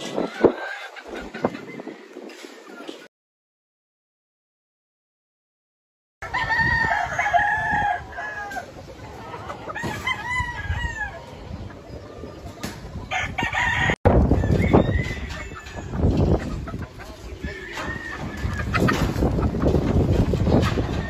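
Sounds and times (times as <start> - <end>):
rooster crowing: 6.2 - 8.7, 13.1 - 16.0.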